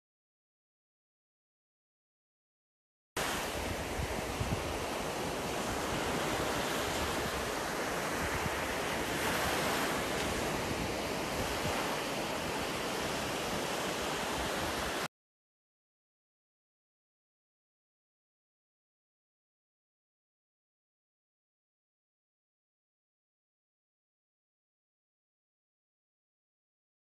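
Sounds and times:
sea waves breaking on beach: 3.2s - 15.1s.

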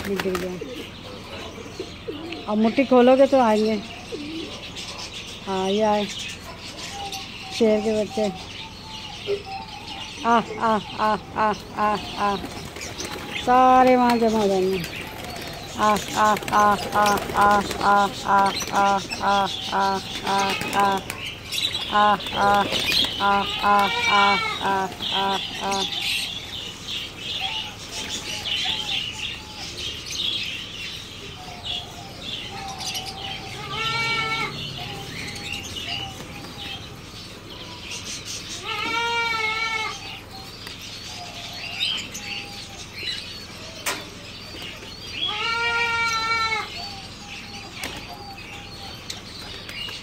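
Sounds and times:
pigeons flapping wings: 0.0s - 0.8s, 12.1s - 19.2s, 20.0s - 25.2s
wavering bleat-like calls: 15.8s - 21.2s, 21.9s - 26.2s, 33.2s - 35.4s, 38.5s - 40.2s, 45.2s - 47.0s.

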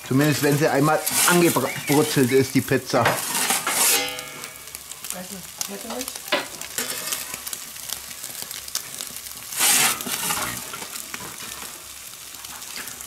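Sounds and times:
gas grill hissing: 0.0s - 13.0s
metal peel scraping stone: 0.9s - 2.1s, 3.0s - 4.6s, 9.6s - 10.8s.

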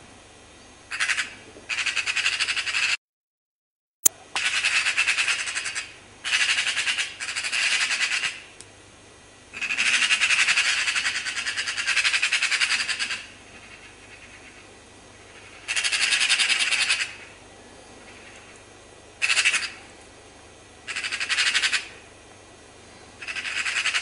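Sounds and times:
magpies chattering: 0.9s - 3.0s, 9.6s - 17.4s, 19.2s - 19.9s, 20.9s - 22.0s, 23.2s - 24.0s.

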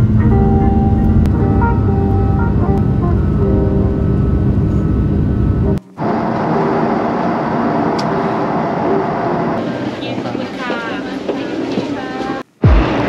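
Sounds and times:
loud low vehicle rumble: 0.0s - 10.0s.

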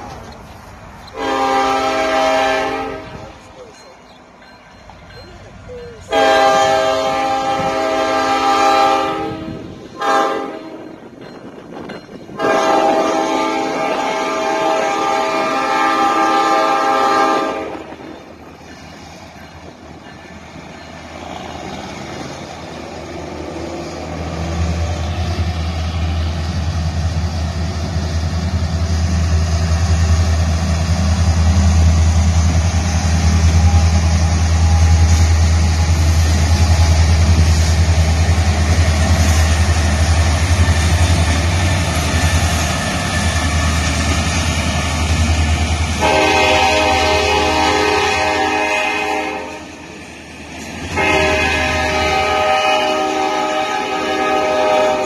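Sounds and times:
diesel locomotive engine drone: 0.0s - 55.0s.

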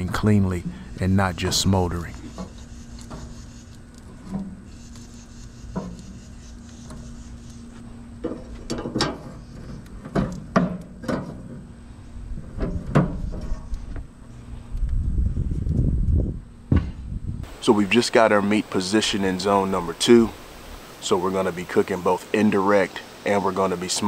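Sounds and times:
ribs and metal rack clattering on grate: 8.2s - 11.6s.

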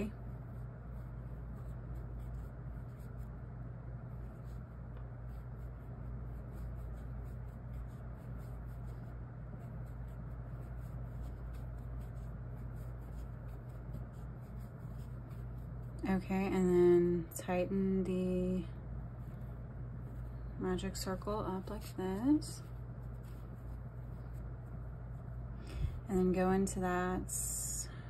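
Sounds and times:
yarn rubbing on crochet hook: 0.0s - 25.6s
steady low hum: 0.0s - 28.0s.

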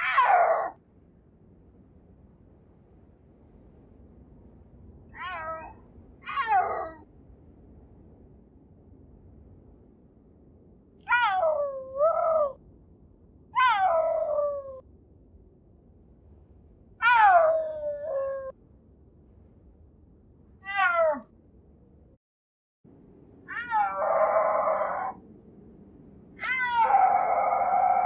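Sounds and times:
cat meowing: 5.2s - 7.0s, 11.0s - 12.0s, 20.6s - 21.3s, 23.5s - 25.2s, 26.4s - 28.0s.

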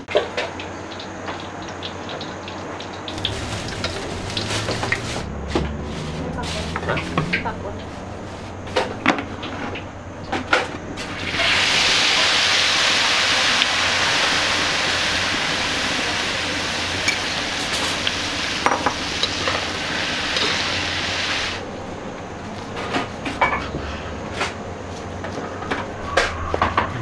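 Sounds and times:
hot oil sizzling: 0.0s - 21.7s.

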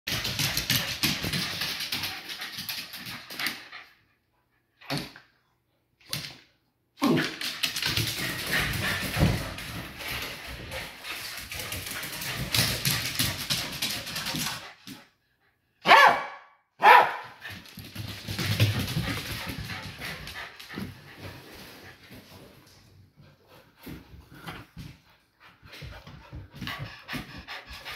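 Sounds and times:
small dog barking: 15.8s - 17.4s.

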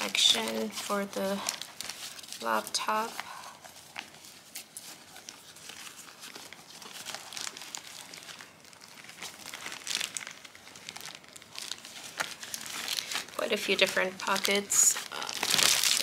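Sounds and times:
plastic wrap and fabric rustling: 0.0s - 16.0s.

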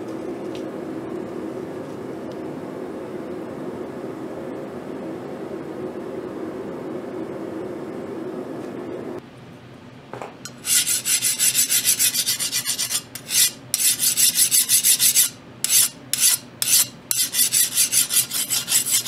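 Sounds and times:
file scraping steel blade: 10.5s - 19.0s.

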